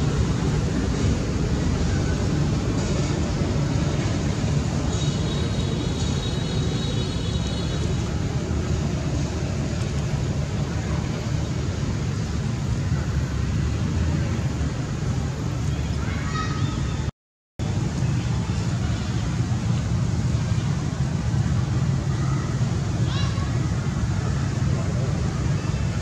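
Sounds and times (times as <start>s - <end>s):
low rumbling noise: 0.0s - 26.0s.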